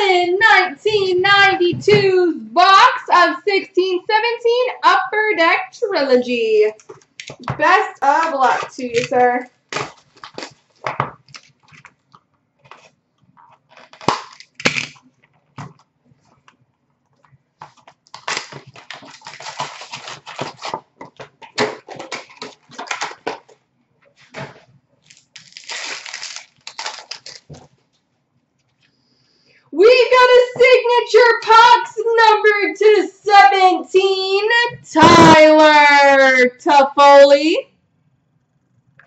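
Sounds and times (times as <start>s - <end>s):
cards clicking and rustling: 6.8s - 16.6s, 17.6s - 23.6s, 24.2s - 27.7s
card wrapper crinkling and tearing: 8.0s - 12.0s, 12.6s - 15.1s, 17.6s - 23.6s, 24.4s - 27.7s.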